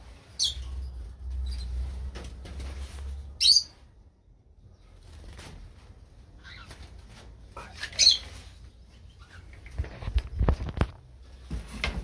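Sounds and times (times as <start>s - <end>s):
knocks and rustles: 1.3s - 3.2s, 9.6s - 12.0s.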